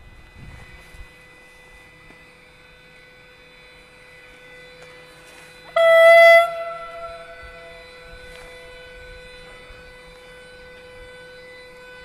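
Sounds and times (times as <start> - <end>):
faint steady hum: 0.0 - 12.0
locomotive horn blast: 3.4 - 12.0.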